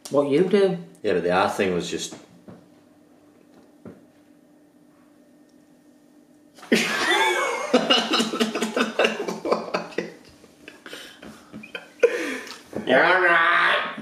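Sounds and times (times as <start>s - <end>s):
faint steady hum: 0.0s - 14.0s
man and woman laughing loudly: 6.6s - 12.6s.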